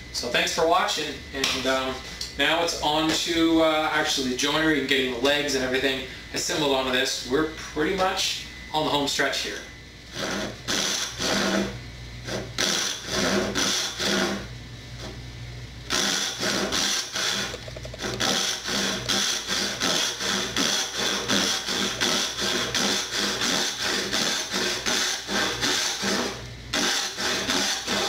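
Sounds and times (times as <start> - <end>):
hand saw cutting wood: 10.1 - 14.4, 15.9 - 28.0.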